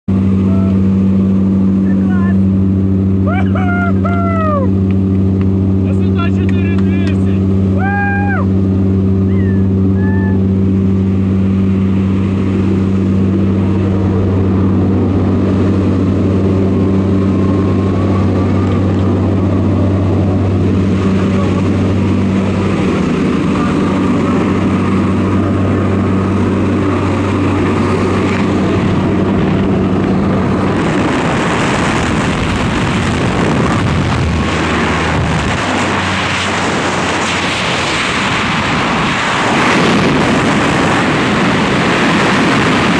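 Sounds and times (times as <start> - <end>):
propeller engine drone: 0.0 - 42.9
rush of wind: 0.1 - 42.9.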